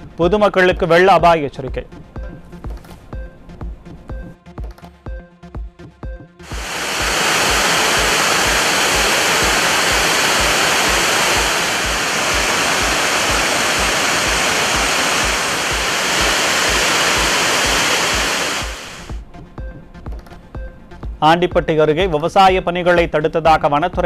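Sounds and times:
music with low beat: 0:01.7 - 0:21.7
waterfall roaring: 0:06.4 - 0:19.2.

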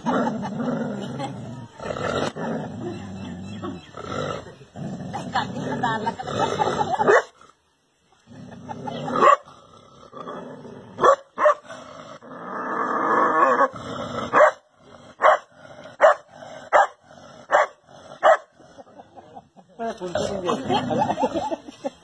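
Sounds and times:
dog barking: 0:11.0 - 0:11.6, 0:14.3 - 0:14.6, 0:15.2 - 0:18.5.

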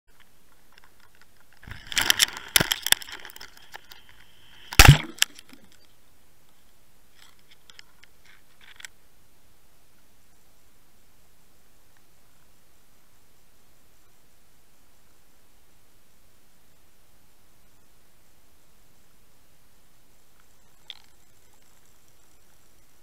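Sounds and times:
underwater clicks and cracks: 0:00.2 - 0:05.9, 0:07.2 - 0:09.0
loud underwater thump: 0:04.7 - 0:05.6.

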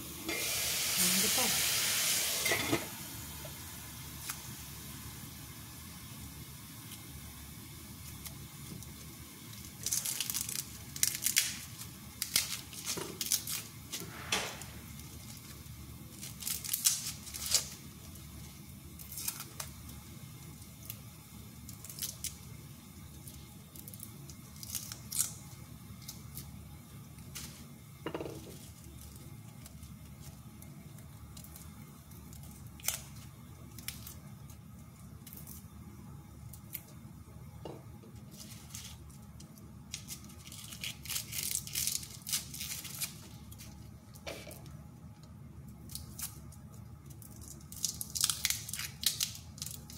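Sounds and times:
garlic skins crackling and tearing: 0:08.0 - 0:14.0, 0:14.8 - 0:22.5, 0:23.1 - 0:27.7, 0:28.4 - 0:35.7, 0:36.4 - 0:37.0, 0:38.2 - 0:49.9.

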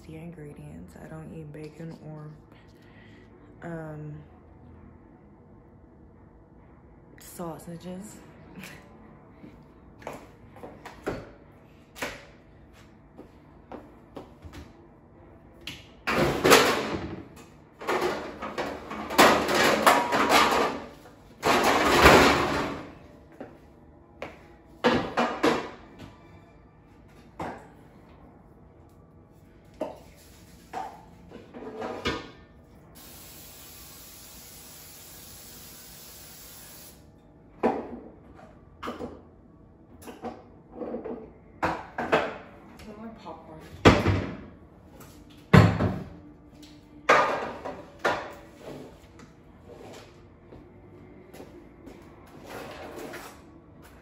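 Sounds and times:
aerosol spray hissing: 0:33.0 - 0:37.0.

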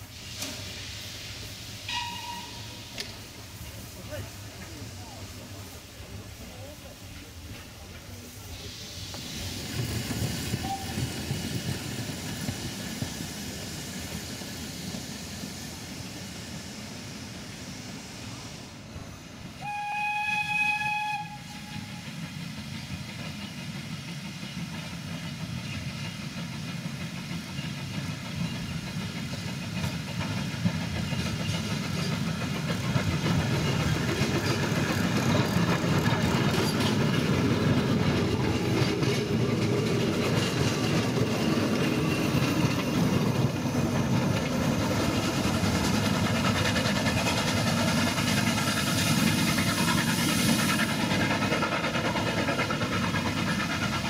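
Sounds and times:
train running noise: 0:00.0 - 0:54.0
steam locomotive whistle: 0:01.9 - 0:03.1, 0:10.6 - 0:11.1, 0:19.6 - 0:22.2.

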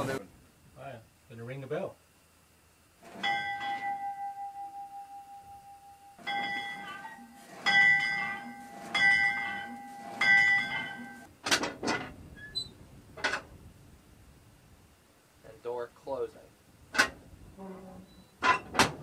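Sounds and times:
locomotive bell ringing: 0:03.2 - 0:11.3.

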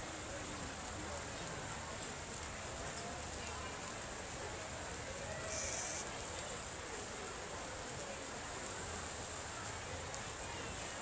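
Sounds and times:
faint indistinct voices: 0:00.0 - 0:11.0
steady high hiss: 0:05.4 - 0:06.1.

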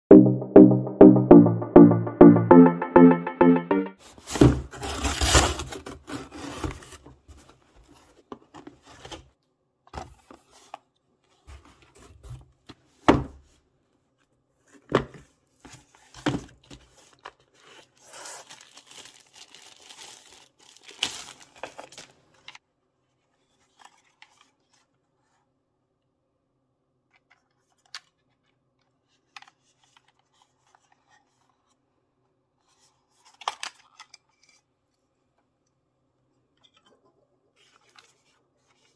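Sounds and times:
plastic bag crinkling: 0:18.4 - 0:22.0.

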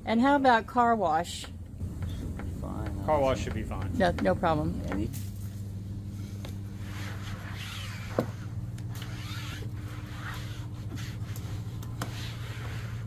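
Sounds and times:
steady low hum: 0:00.0 - 0:13.0
hands rubbing a panel: 0:06.2 - 0:13.0.

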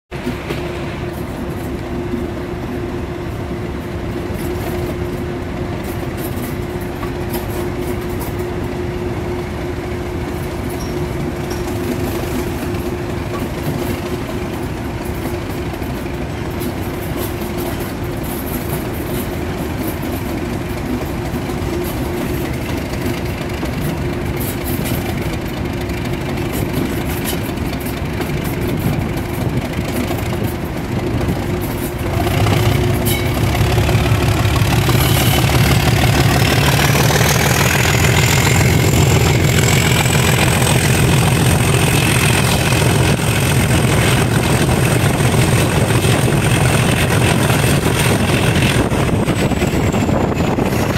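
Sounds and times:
diesel locomotive engine working hard: 0:00.0 - 0:50.9
wheels on rails: 0:00.2 - 0:50.9.

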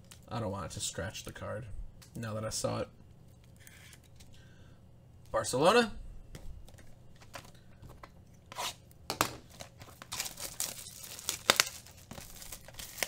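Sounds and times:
plastic wrap crinkling: 0:09.4 - 0:13.0
plastic wrap ripping: 0:09.5 - 0:13.0.

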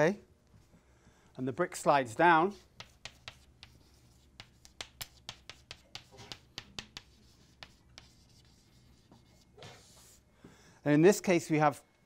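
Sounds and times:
chalk tapping on blackboard: 0:02.5 - 0:10.2.

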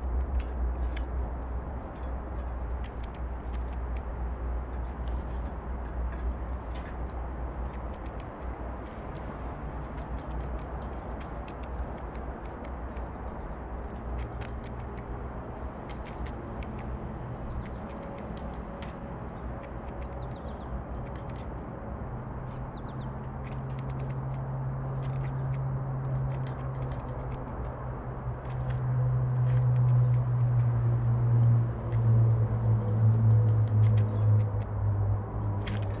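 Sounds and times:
bird pecking at peanuts: 0:00.0 - 0:04.1, 0:04.8 - 0:21.6, 0:23.1 - 0:30.7
low steady hum: 0:00.0 - 0:36.0.

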